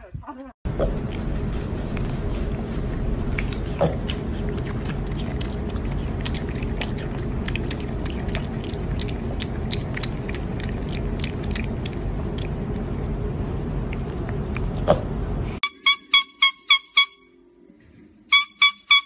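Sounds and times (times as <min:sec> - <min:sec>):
low background hum: 0:00.0 - 0:19.0
piglet chewing and smacking lips: 0:00.7 - 0:15.2.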